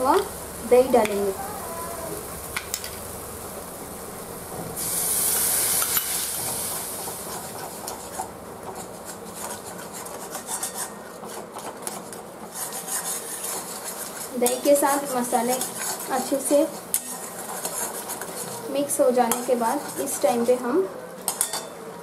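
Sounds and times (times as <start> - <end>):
food sizzling in hot pan: 0.0 - 11.0, 12.4 - 20.8
metal spatula scraping pan: 7.2 - 20.6.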